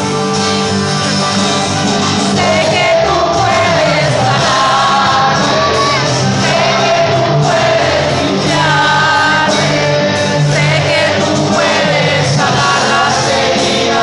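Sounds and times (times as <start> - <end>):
amplified backing music: 0.0 - 14.0
man singing into a microphone: 2.3 - 14.0.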